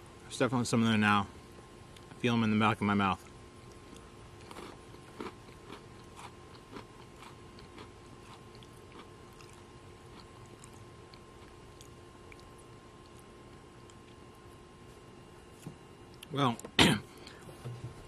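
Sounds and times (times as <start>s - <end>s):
chewing crunchy cookie: 3.2s - 16.6s.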